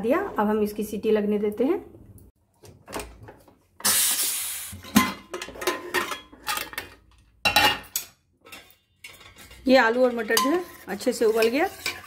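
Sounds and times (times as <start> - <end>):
pressure cooker steam hiss: 3.8 - 4.8
metal lid and pot clanking: 4.8 - 12.0.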